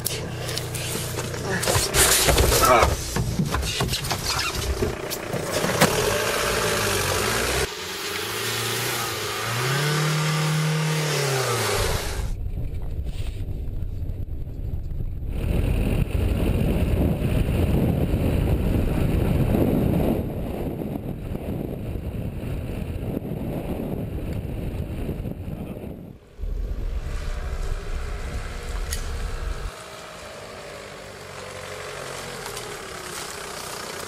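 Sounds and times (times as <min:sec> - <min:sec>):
car engine: 0:00.0 - 0:12.4, 0:26.2 - 0:34.0
road noise: 0:00.0 - 0:34.0.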